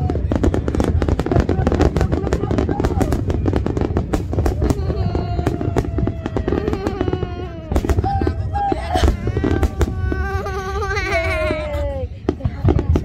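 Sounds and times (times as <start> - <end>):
crowd voices: 0.0 - 13.0
fireworks bangs and crackles: 0.0 - 13.0.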